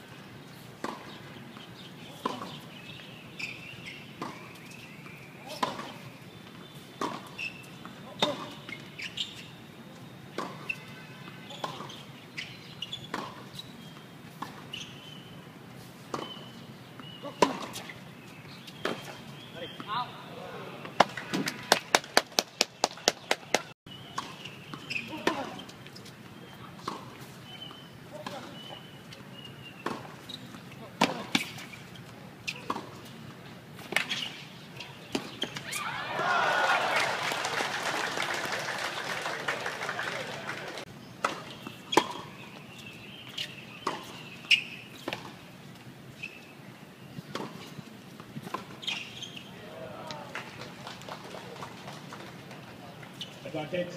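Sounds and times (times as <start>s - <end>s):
tennis ball racket strokes: 0.1s - 19.9s, 24.1s - 35.9s, 40.2s - 50.6s
racket hitting tennis ball: 17.2s - 17.9s, 29.8s - 31.8s, 32.4s - 33.1s, 41.2s - 42.4s, 43.4s - 45.4s, 47.3s - 47.6s
spectators' voices: 35.8s - 40.8s
spectators clapping: 36.1s - 40.8s, 50.2s - 52.2s.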